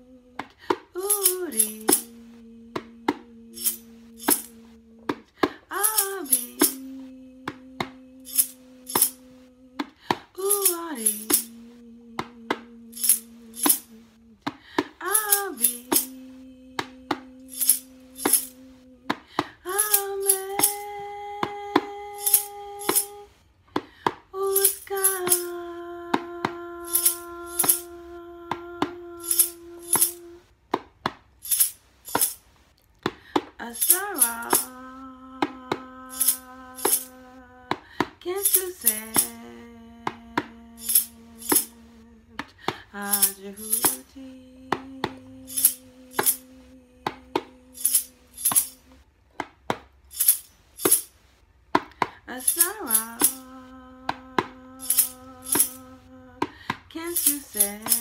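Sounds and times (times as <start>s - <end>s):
woman chanting long notes: 1.0s - 5.1s, 5.9s - 14.3s, 15.2s - 19.1s, 24.4s - 30.5s, 43.0s - 48.3s, 52.6s - 56.4s.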